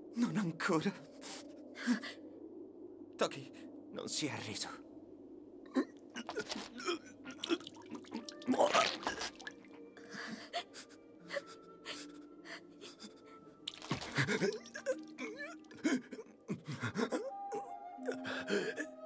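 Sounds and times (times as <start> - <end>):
heavy gasping breaths: 12.9 - 15.0.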